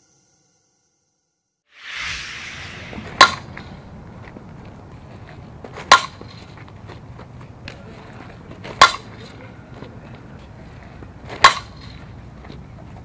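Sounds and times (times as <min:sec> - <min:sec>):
outdoor background noise: 0:01.8 - 0:13.0
bat hitting ball: 0:05.9 - 0:06.3, 0:11.3 - 0:11.9.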